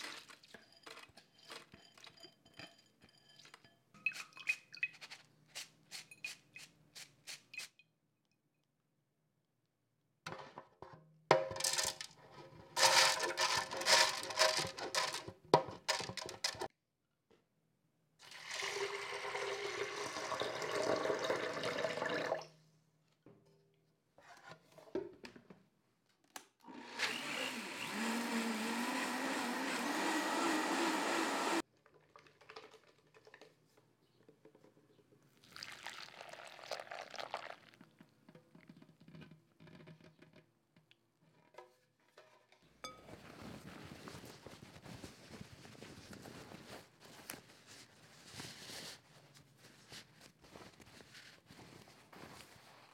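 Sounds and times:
electric blender running: 26.7s - 31.6s.

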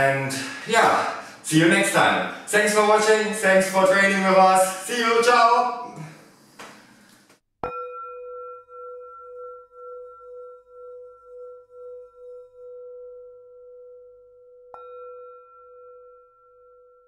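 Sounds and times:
singing bowl ringing: 7.6s - 17.0s.

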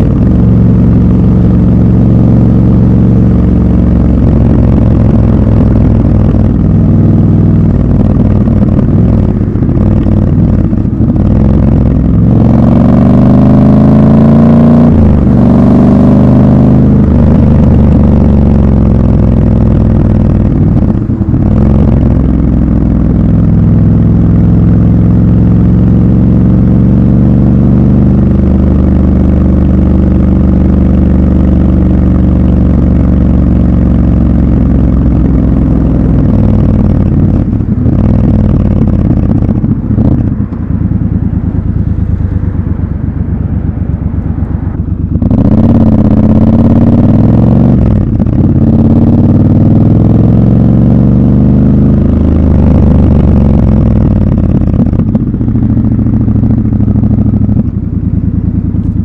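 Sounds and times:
motorcycle engine running: 0.0s - 59.0s.

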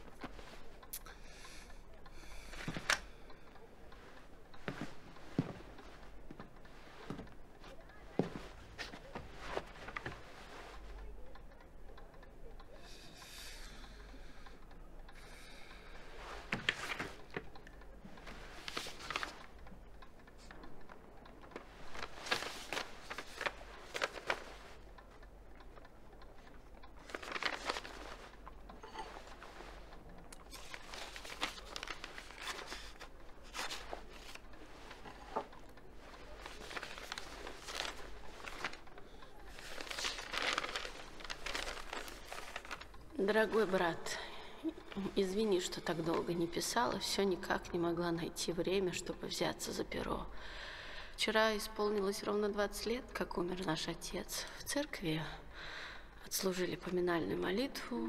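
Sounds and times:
paper rustling and crinkling: 4.0s - 11.0s, 16.4s - 17.4s, 18.2s - 19.5s, 21.5s - 24.8s, 27.0s - 29.8s, 30.4s - 43.8s.

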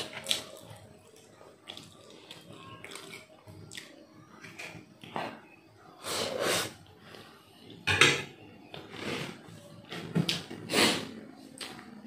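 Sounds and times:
chewing: 0.0s - 4.0s
slurping noodles: 6.0s - 6.8s.

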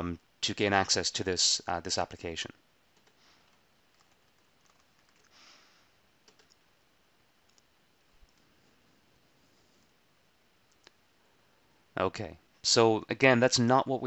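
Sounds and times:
soft hiss: 0.0s - 14.0s
keyboard and mouse clicks: 3.0s - 5.3s, 6.2s - 6.6s, 7.5s - 8.5s.

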